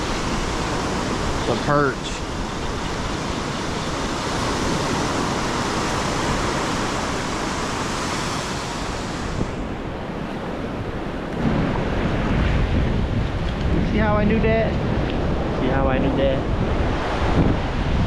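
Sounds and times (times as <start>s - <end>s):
ocean surf breaking: 0.0s - 18.0s
wind on microphone: 0.0s - 18.0s
low rumble: 8.8s - 18.0s.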